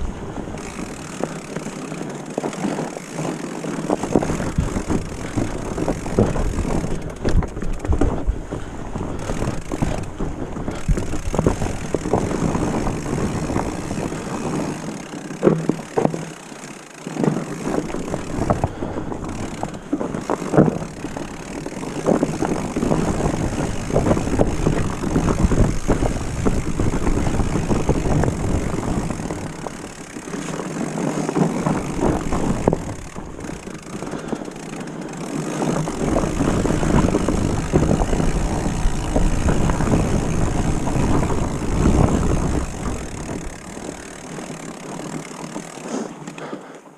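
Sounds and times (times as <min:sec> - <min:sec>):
bike rattling and knocking: 0:00.0 - 0:46.9
bike tyres rolling over leaves: 0:00.0 - 0:46.9.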